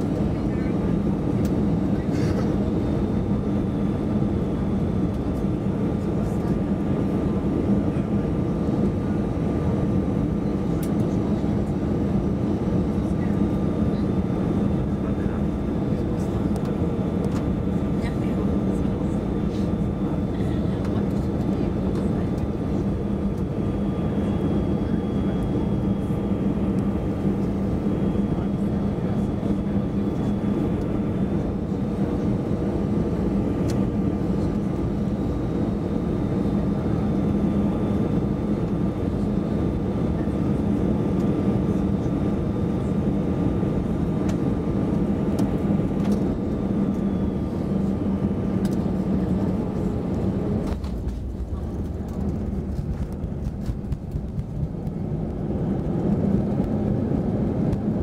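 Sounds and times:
jet engine drone with whine: 0.0 - 58.0
runway rumble with knocks: 50.6 - 55.4.

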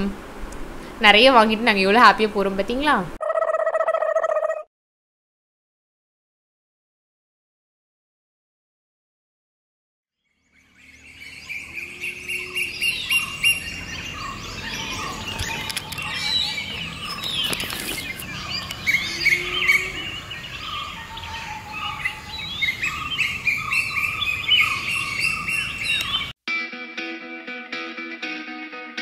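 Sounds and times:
birds chirping and whistling: 10.3 - 26.3.

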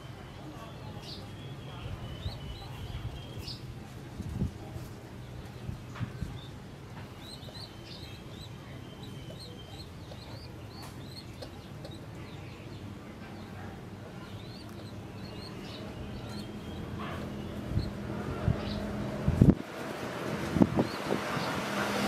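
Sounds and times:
pigeon squabs peeping: 6.1 - 12.1, 14.2 - 18.9.

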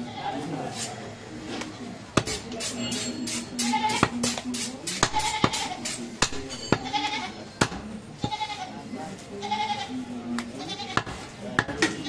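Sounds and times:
knife chopping meat on wood: 2.2 - 2.5, 3.9 - 6.8, 7.6 - 7.8, 11.0 - 12.0.

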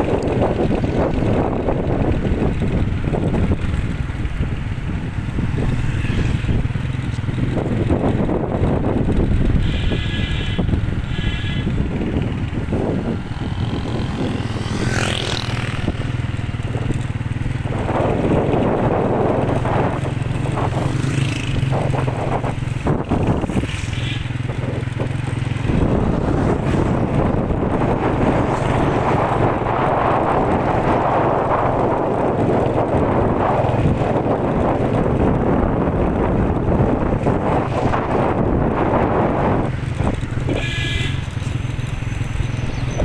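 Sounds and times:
road noise: 0.0 - 43.0
vehicle engine running: 0.0 - 43.0
wind on microphone: 0.0 - 43.0.

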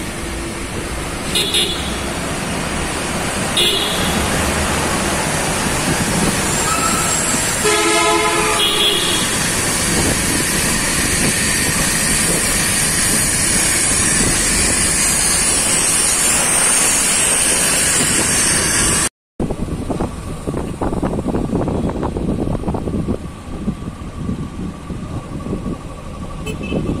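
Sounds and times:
road traffic noise: 0.0 - 27.0
vehicle horn: 1.3 - 2.1, 3.5 - 4.4, 6.6 - 9.5, 26.4 - 27.0.

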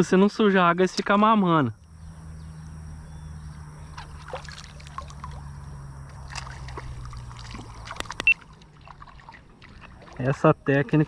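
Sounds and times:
steady low hum: 0.0 - 11.0
water splashing against boat: 3.8 - 11.0.

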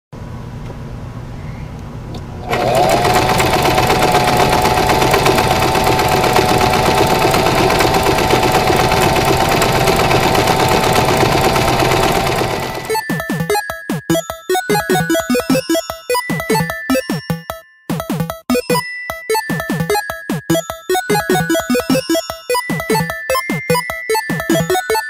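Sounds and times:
sewing machine running: 2.4 - 13.0.

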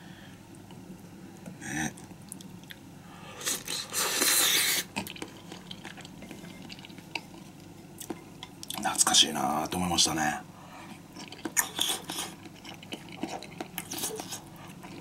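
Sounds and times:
person chewing: 3.4 - 8.8, 10.9 - 15.0.

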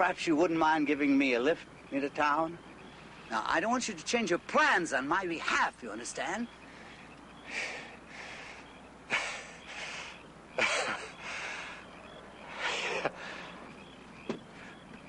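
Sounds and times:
man laughing breathily: 7.5 - 11.9, 12.5 - 13.7.

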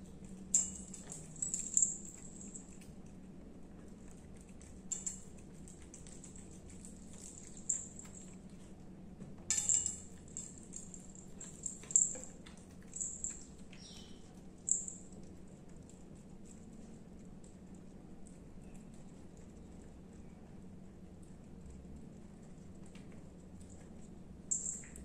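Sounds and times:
cat chewing and licking: 0.0 - 9.2, 10.1 - 25.0
faint low hum: 0.0 - 25.0.

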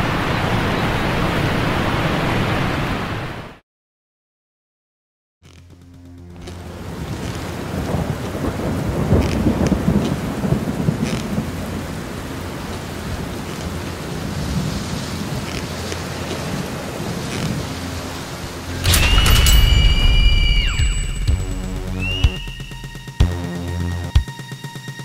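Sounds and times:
rain: 0.0 - 3.6, 6.3 - 22.2
traffic on wet road: 6.4 - 18.8.

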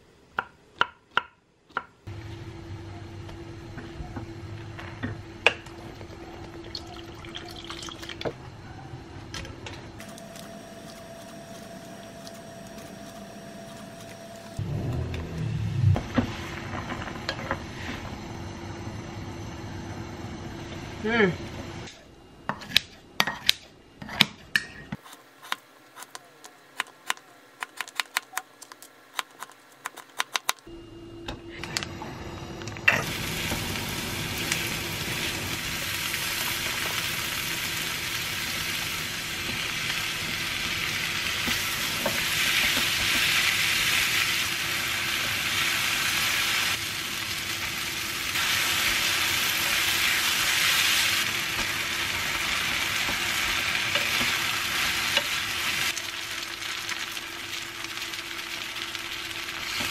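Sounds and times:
food sizzling in a wok: 33.0 - 59.9.

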